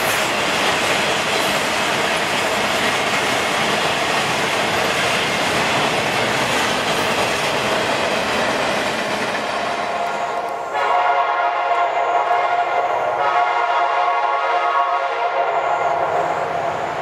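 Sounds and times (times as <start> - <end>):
steel wheels rolling on rails: 0.0 - 10.8.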